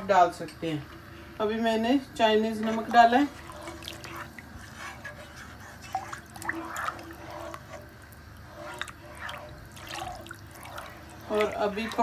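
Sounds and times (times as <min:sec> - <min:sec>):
soup bubbling in a pot: 0:01.0 - 0:12.0
plastic ladle stirring liquid: 0:02.4 - 0:12.0.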